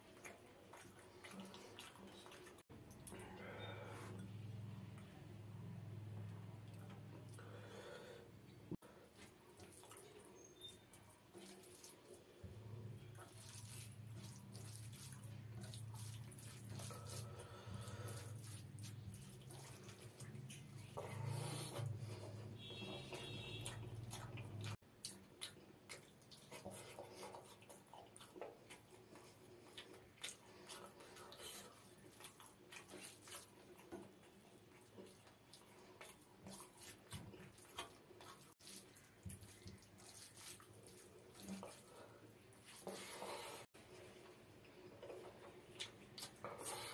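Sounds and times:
chewing and lip smacks: 0.0s - 3.4s, 23.6s - 41.9s, 45.0s - 46.9s
wet squishing of food by hand: 0.0s - 46.9s.

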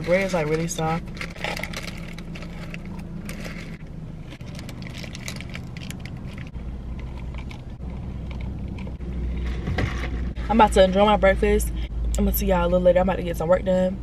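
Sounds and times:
paper bag crinkling: 0.0s - 7.6s
car cabin hum: 0.0s - 14.0s
deep rumble: 0.0s - 14.0s.

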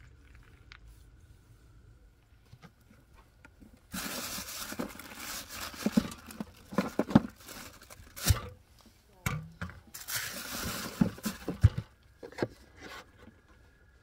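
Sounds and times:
plastic bag crinkling: 3.9s - 8.4s
items knocking against cooler: 5.7s - 7.4s, 10.8s - 12.4s.

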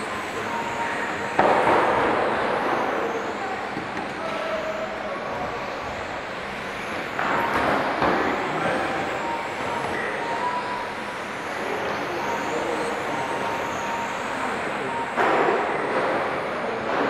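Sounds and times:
electric motors whining: 0.0s - 16.8s.

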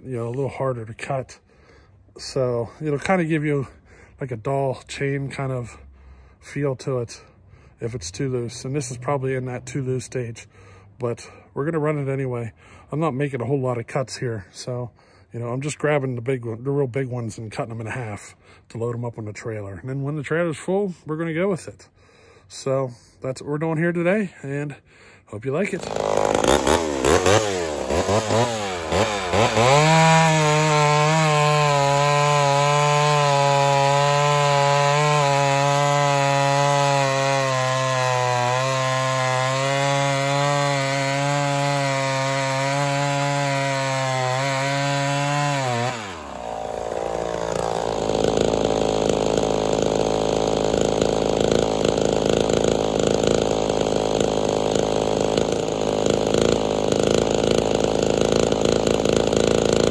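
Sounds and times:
chainsaw cutting wood: 25.5s - 59.9s
chainsaw idling: 25.5s - 59.9s
chainsaw revving: 25.6s - 59.9s.

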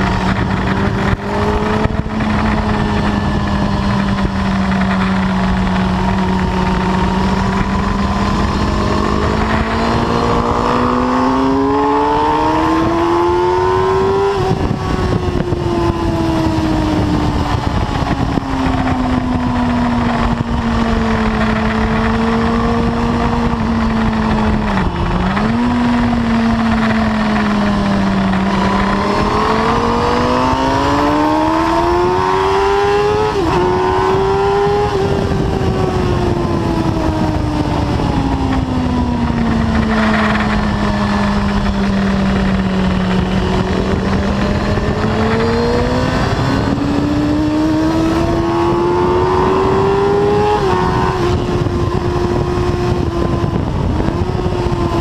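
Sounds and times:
motorcycle engine revving: 0.0s - 55.0s
wind noise: 0.0s - 55.0s.

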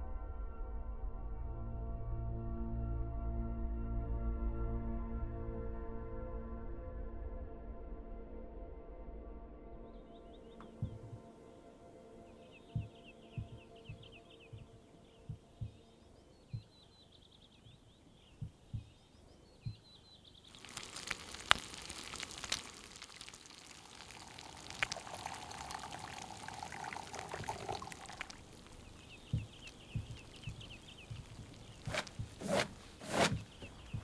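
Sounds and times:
low thumps: 10.6s - 11.3s, 12.7s - 15.9s, 17.6s - 19.0s, 20.6s - 34.0s
bird chirping: 12.2s - 34.0s
bacon and eggs sizzling in a pan: 20.5s - 32.4s.

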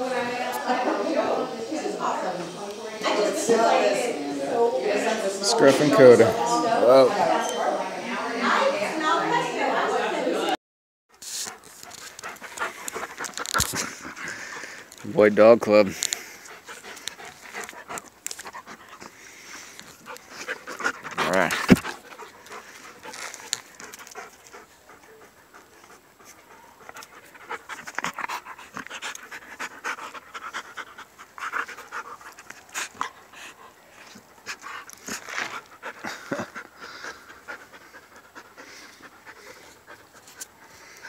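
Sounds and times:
dog panting: 11.4s - 41.0s.

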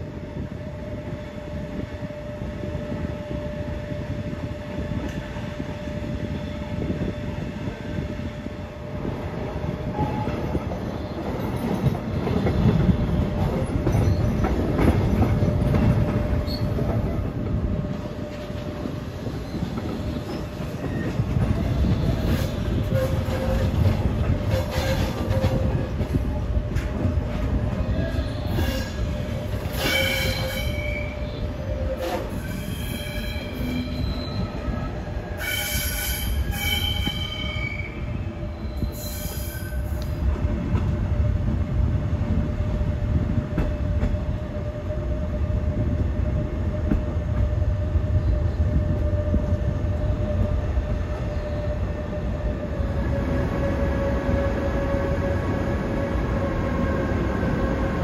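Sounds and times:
train rumbling and humming: 0.0s - 58.0s
train wheels squealing: 13.6s - 15.3s, 16.3s - 17.2s, 18.3s - 25.8s, 27.8s - 40.2s.

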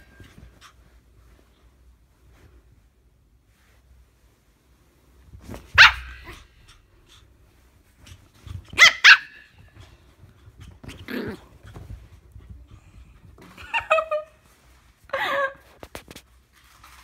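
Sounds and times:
bedding rustling: 0.0s - 17.0s
puppy barking: 5.8s - 6.5s, 8.8s - 9.5s
dog growly bark: 11.0s - 11.5s.

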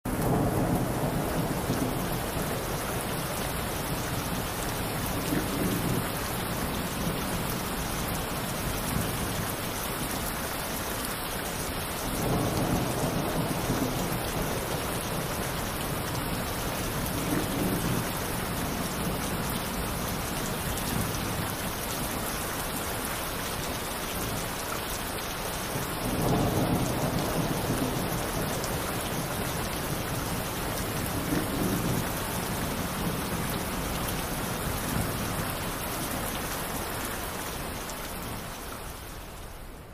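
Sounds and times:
rolling thunder: 0.1s - 3.2s, 12.2s - 20.0s, 26.0s - 34.0s
heavy rain: 0.1s - 39.9s.

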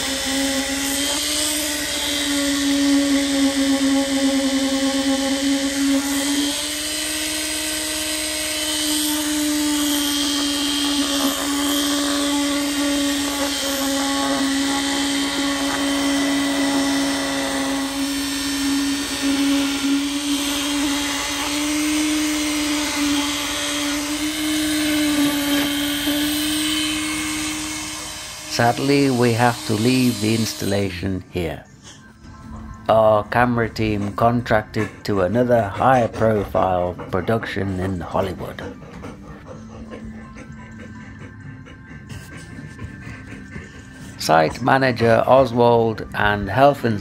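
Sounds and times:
concrete vibrator humming: 0.0s - 47.0s.

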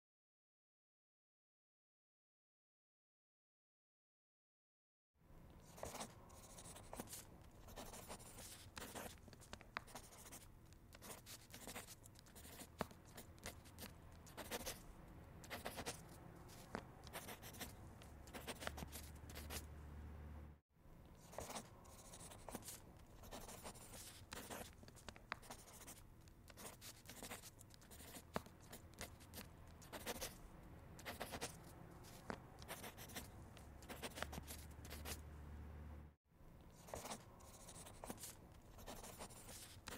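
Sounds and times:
pen scratching on paper: 5.6s - 19.7s, 21.1s - 35.3s, 36.7s - 39.9s.

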